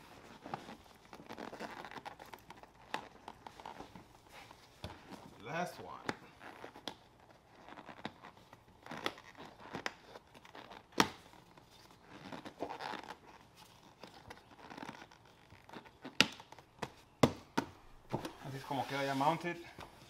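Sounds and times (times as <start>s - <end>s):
fabric rustling and scraping: 0.0s - 16.2s, 18.0s - 20.0s.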